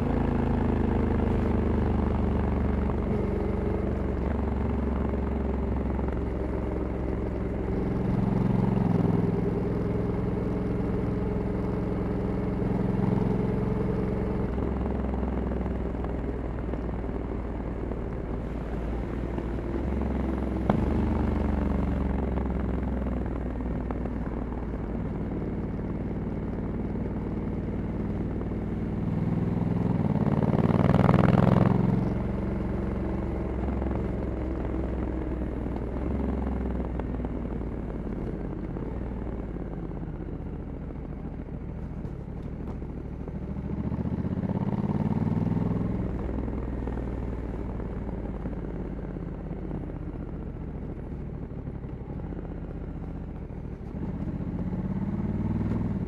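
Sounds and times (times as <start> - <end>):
motorcycle engine revving: 18.3 - 41.0, 41.9 - 56.0.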